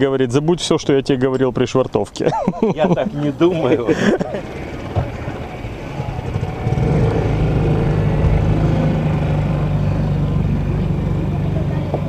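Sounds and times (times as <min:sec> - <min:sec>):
boat motor humming: 0:03.2 - 0:12.0.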